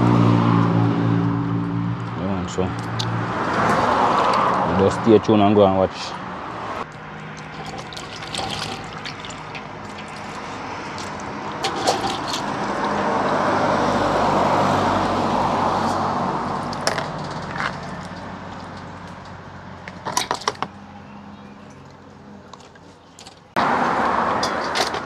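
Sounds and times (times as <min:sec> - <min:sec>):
water sloshing in a steel bowl: 0:07.2 - 0:13.0.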